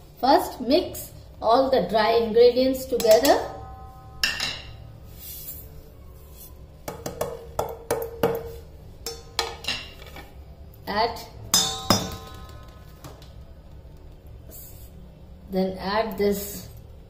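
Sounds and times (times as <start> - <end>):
plates clinking against metal bowl: 9.0 - 10.4.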